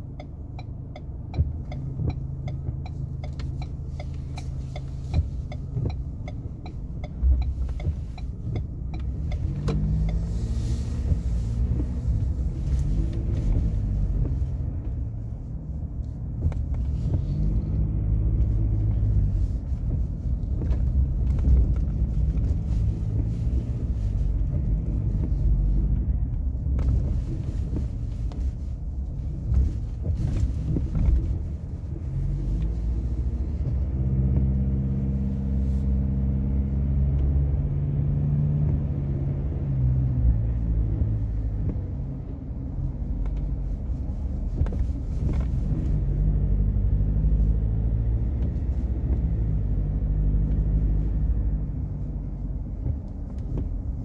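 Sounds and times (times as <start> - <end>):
light ticking: 0.0 - 10.3
pickup engine from inside cabin: 0.0 - 54.0.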